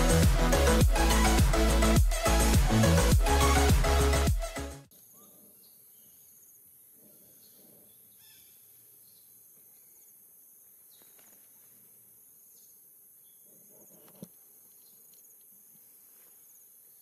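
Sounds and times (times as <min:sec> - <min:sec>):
faint soft rustles: 0:13.4 - 0:16.7.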